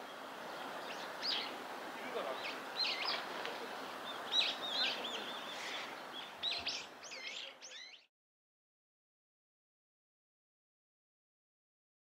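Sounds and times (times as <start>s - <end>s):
outdoor background hiss: 0.0s - 8.1s
small birds chirping: 0.0s - 8.1s.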